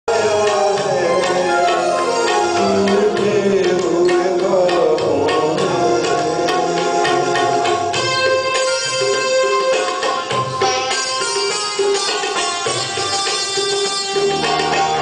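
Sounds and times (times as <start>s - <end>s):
man singing into a microphone: 0.1s - 8.4s
tabla strokes: 0.1s - 15.0s.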